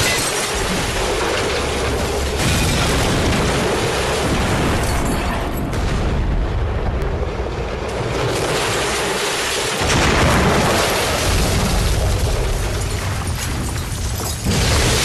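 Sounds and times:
explosion rumble: 0:00.6 - 0:15.0
explosion blast: 0:02.4 - 0:09.0, 0:09.7 - 0:13.2.

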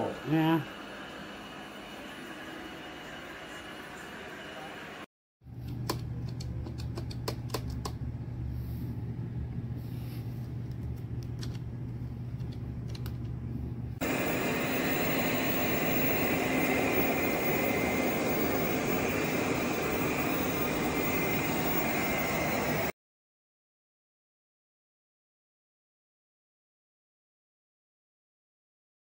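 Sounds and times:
low hum with sharp clicks: 0:05.6 - 0:08.3, 0:10.4 - 0:13.9
robot vacuum whirring: 0:14.0 - 0:22.9.

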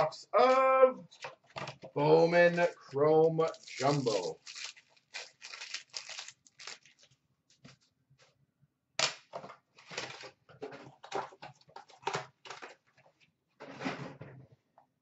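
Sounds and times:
plastic wrapping tearing and rustling: 0:03.4 - 0:07.2.

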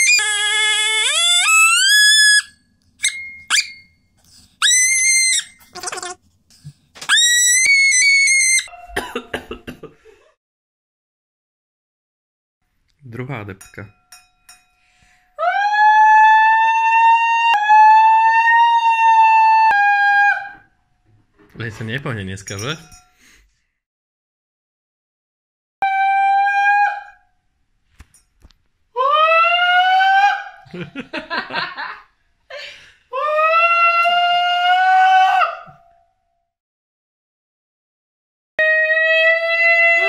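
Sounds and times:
wine glass ringing: 0:03.1 - 0:03.9.

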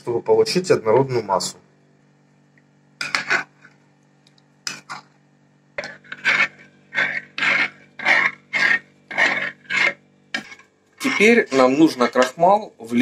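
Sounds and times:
spoon scraping ceramic bowl: 0:03.0 - 0:03.8, 0:04.7 - 0:05.2, 0:05.8 - 0:12.4.

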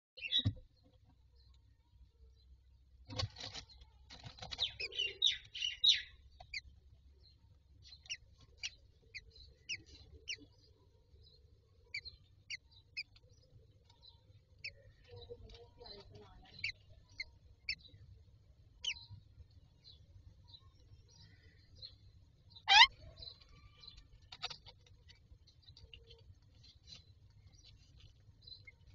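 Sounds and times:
bird chirps: 0:00.2 - 0:02.6, 0:03.5 - 0:28.9
chicks peeping: 0:07.8 - 0:18.0, 0:22.5 - 0:28.9.

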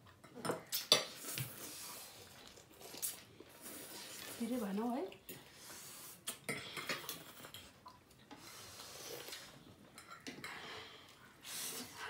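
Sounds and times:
noodles being slurped: 0:00.7 - 0:07.5, 0:08.3 - 0:09.7.

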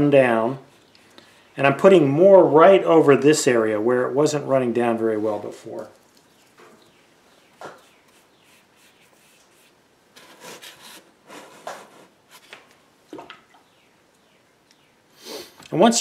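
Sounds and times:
rubbing and scraping: 0:07.6 - 0:12.7.

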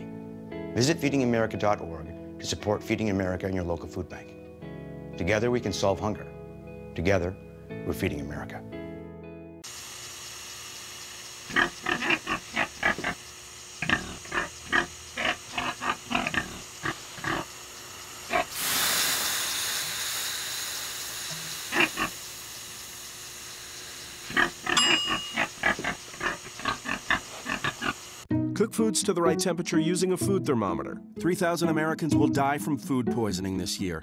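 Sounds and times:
steam hissing off hot stones: 0:09.7 - 0:24.8
pig grunting: 0:11.5 - 0:13.2, 0:13.8 - 0:17.5, 0:18.3 - 0:18.5, 0:21.7 - 0:22.2, 0:24.3 - 0:28.0.

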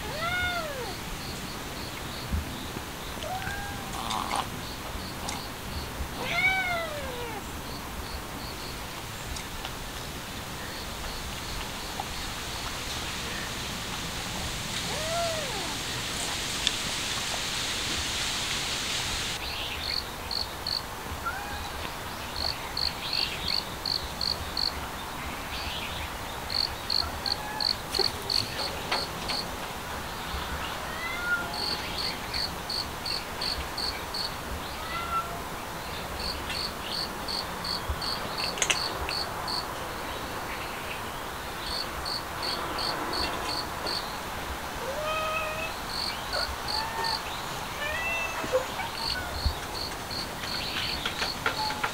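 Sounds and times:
cat mewing: 0:00.0 - 0:01.1, 0:03.2 - 0:04.5, 0:06.2 - 0:07.4, 0:14.8 - 0:15.8, 0:27.0 - 0:28.1, 0:44.8 - 0:47.2, 0:47.8 - 0:49.5
steady hiss: 0:00.0 - 0:51.9
insects chirping: 0:00.6 - 0:06.0, 0:07.1 - 0:09.0, 0:14.7 - 0:20.9, 0:22.2 - 0:24.8, 0:26.3 - 0:29.5, 0:31.6 - 0:34.8, 0:35.9 - 0:40.7, 0:41.3 - 0:44.3, 0:45.8 - 0:47.6, 0:49.0 - 0:51.8.

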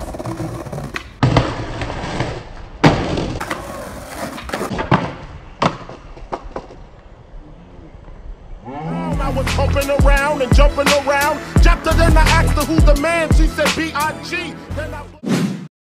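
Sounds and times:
skateboard clattering on sidewalk: 0:00.0 - 0:07.0
skateboard deck slamming ground: 0:00.0 - 0:07.0
skateboard wheels rolling on pavement: 0:00.0 - 0:08.7.

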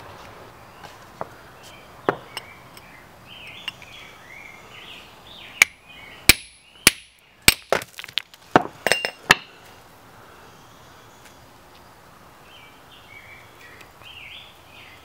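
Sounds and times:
hammer striking steel chisel: 0:05.6 - 0:07.6.

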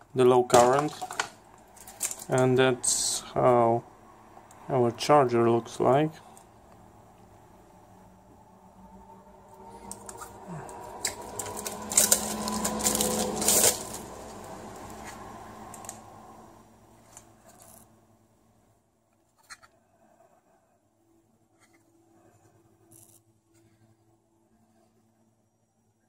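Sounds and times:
plastic film crinkling and tearing: 0:00.5 - 0:02.4, 0:09.8 - 0:16.0.

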